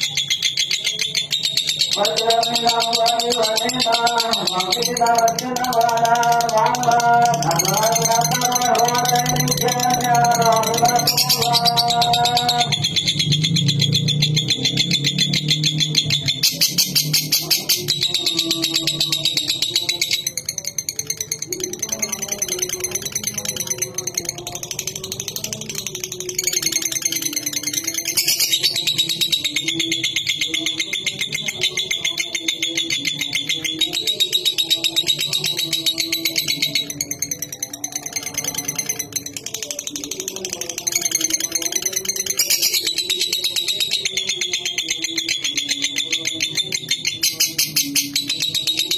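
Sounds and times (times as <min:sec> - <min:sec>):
bird chattering trill: 0:00.0 - 0:48.9.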